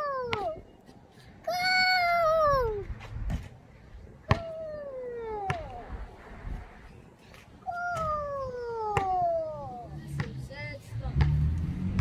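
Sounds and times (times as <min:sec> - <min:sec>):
child crying out: 0:00.0 - 0:00.6, 0:01.5 - 0:02.8, 0:07.7 - 0:09.9.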